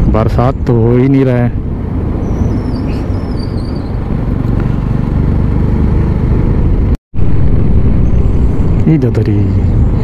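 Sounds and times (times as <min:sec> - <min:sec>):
wind rumble: 0:00.0 - 0:10.0
motorcycle engine running: 0:02.0 - 0:08.9.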